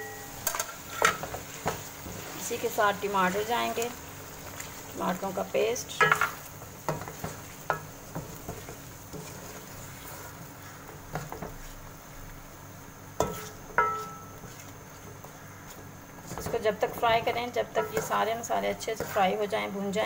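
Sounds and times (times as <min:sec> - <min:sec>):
food sizzling in a pan: 0:00.0 - 0:20.0
spatula stirring in a pan: 0:00.4 - 0:20.0
spatula knocking against pan: 0:13.2 - 0:14.3.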